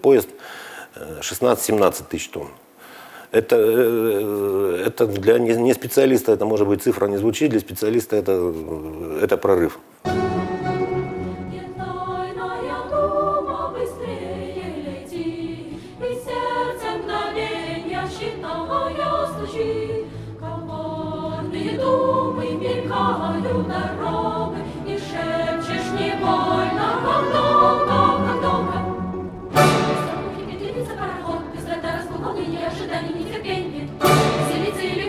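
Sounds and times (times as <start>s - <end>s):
choir singing with instruments: 10.0s - 35.0s.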